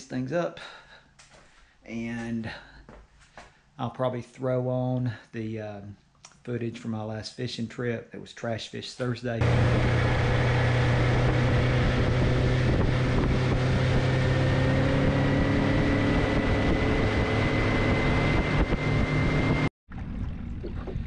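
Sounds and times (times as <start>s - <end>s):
outboard motor droning: 9.4s - 21.0s
wind on microphone: 9.4s - 21.0s.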